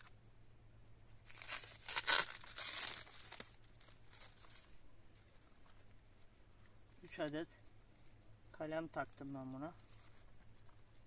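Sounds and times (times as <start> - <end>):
plastic tape crinkling and tearing: 1.1 - 4.8, 9.1 - 11.0.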